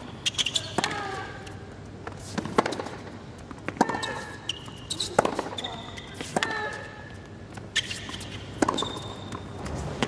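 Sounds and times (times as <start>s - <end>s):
racket striking tennis ball: 2.1s - 6.8s, 7.8s - 9.4s.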